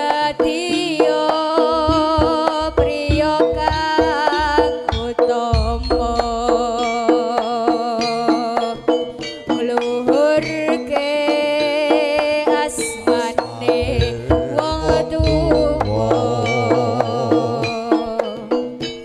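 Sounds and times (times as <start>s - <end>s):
kendang drum strokes: 0.2s - 9.2s, 12.2s - 18.9s
pitched melody: 4.0s - 8.2s, 12.8s - 18.2s
long wavering held note: 5.5s - 7.6s, 14.0s - 17.6s.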